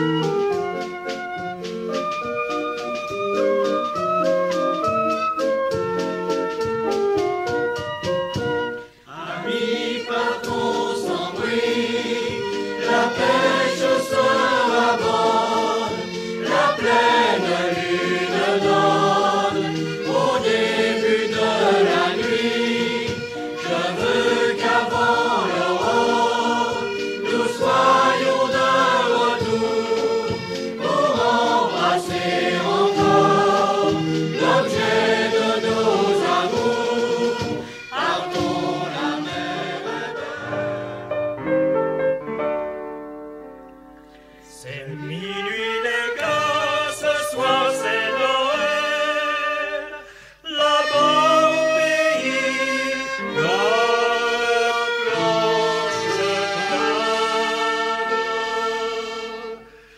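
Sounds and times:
choir singing folk song: 9.1 - 41.3, 44.5 - 59.8.

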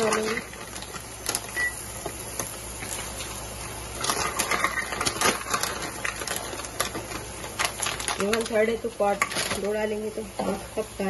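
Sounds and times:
cashews clattering into a pot: 0.0 - 1.5, 4.0 - 9.8.

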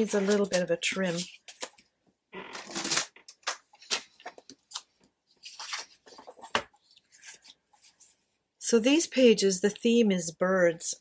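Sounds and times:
paper sheets rustling: 0.0 - 1.9, 2.6 - 8.2.

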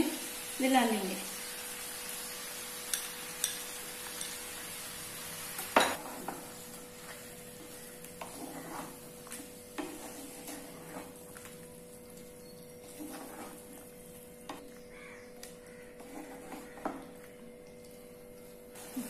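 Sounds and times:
low sizzle: 0.0 - 19.0
spatula scraping frying pan: 5.8 - 11.3, 12.8 - 14.6, 15.8 - 17.2.

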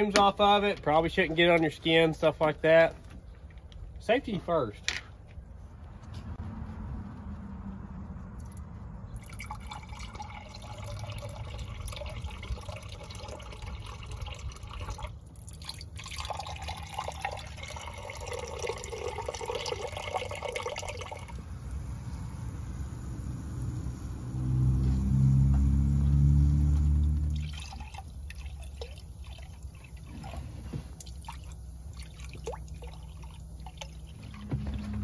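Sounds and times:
liquid splashing and trickling: 8.4 - 21.4, 27.1 - 35.0.

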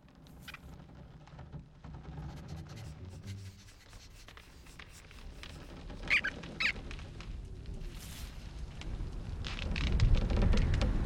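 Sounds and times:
low background rumble: 0.0 - 11.0
cartoon rodent squeaks: 6.0 - 6.8.

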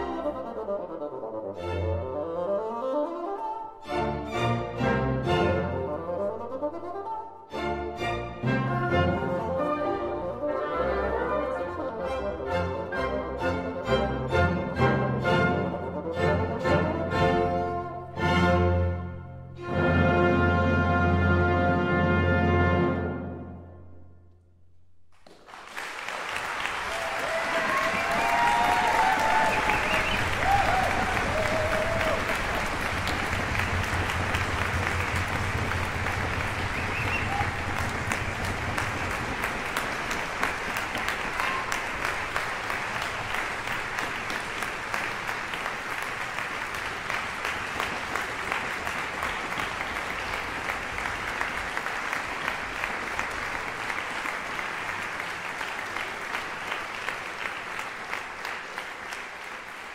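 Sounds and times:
audience applauding: 25.1 - 59.9.

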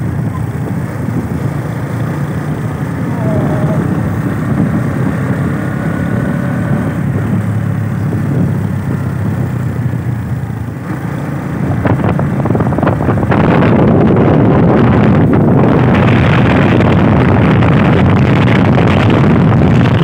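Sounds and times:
motorcycle engine running: 0.0 - 20.0
wind buffeting microphone: 0.0 - 20.0.

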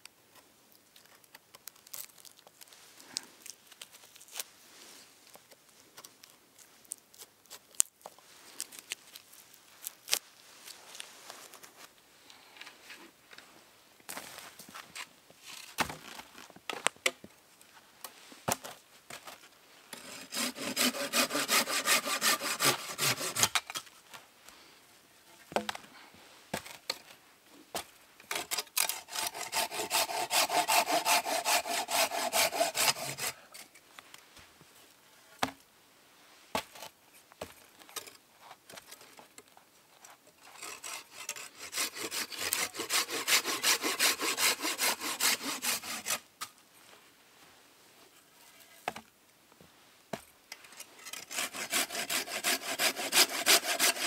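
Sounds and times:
hand saw cutting log: 20.0 - 23.7, 28.3 - 33.7, 40.4 - 46.3, 51.0 - 54.0.

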